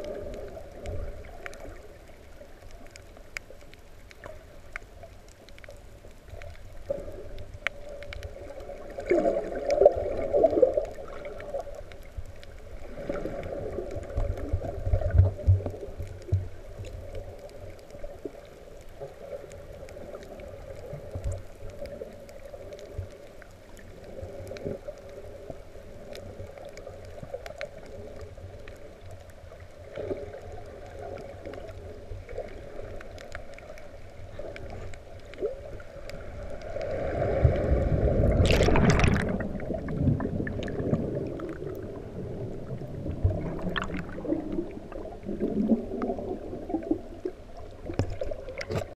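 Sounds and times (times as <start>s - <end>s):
faint clicks: 0.0s - 37.8s, 42.5s - 48.9s
muffled underwater surge: 29.9s - 48.9s.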